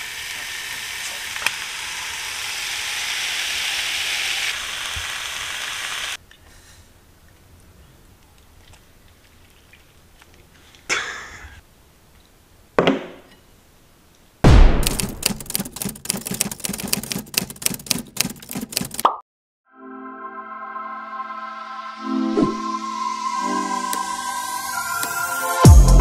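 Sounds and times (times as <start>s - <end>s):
sudden loud hit: 14.4s - 15.2s
fast rattle of sharp clicks: 14.8s - 19.1s.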